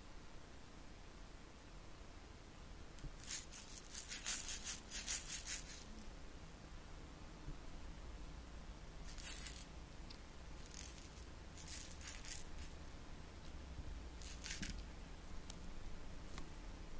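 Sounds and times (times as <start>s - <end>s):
toy rattle shaking: 3.1s - 6.0s, 9.1s - 9.7s, 10.6s - 12.9s, 14.2s - 14.8s.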